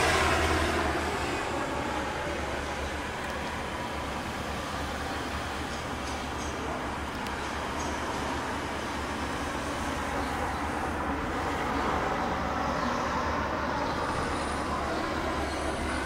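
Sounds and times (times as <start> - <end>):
turboprop plane flying past: 0.0 - 7.0.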